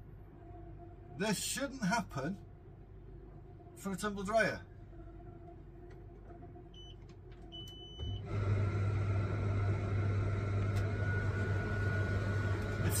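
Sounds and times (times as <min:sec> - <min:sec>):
dryer drum motor humming: 0:05.8 - 0:13.0
control panel beeps: 0:06.7 - 0:08.2.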